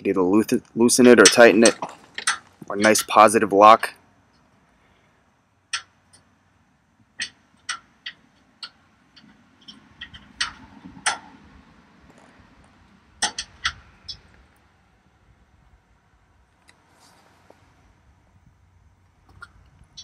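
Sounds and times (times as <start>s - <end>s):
handling rustle: 1.2s - 3.4s, 16.6s - 18.0s
metal latch clicking: 13.2s - 13.9s.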